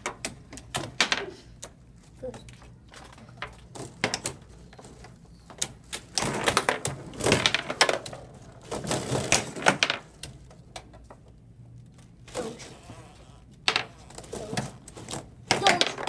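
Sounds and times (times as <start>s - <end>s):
foosball ball clacking: 5.7s - 11.2s, 13.7s - 16.0s.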